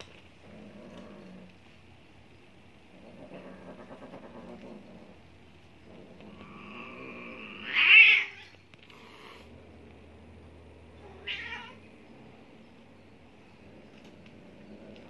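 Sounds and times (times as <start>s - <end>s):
cats tussling: 0.0s - 15.0s
cat yowling: 11.0s - 11.8s.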